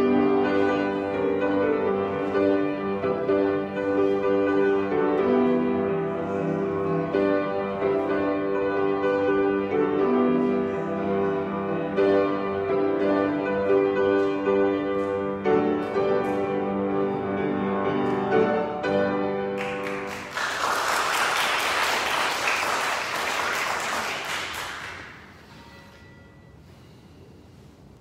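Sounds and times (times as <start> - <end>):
congregation applauding: 19.5 - 25.5.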